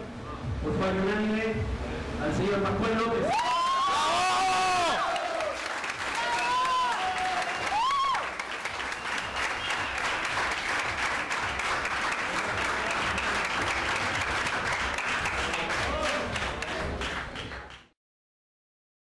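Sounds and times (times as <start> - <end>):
crowd applauding: 3.4 - 17.9.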